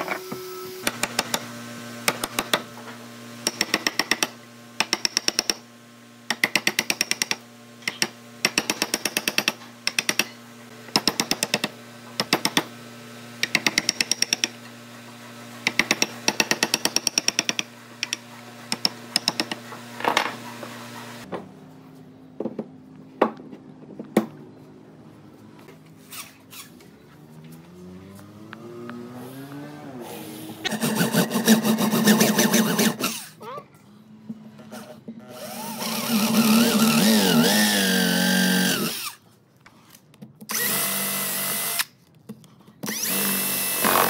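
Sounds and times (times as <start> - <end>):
power tool hammering: 0.0 - 21.4, 30.0 - 33.3, 35.3 - 39.2, 42.8 - 44.0.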